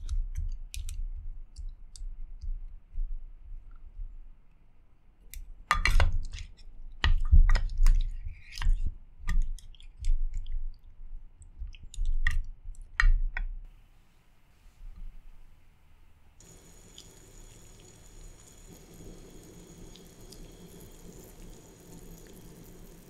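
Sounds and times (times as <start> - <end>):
wet squishing food: 5.9 - 12.4, 16.4 - 23.0.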